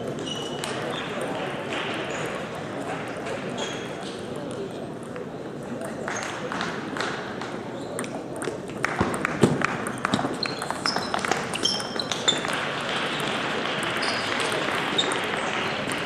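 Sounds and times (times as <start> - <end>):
shoes squeaking on floor: 0.0 - 1.1, 9.9 - 12.6, 14.0 - 15.3.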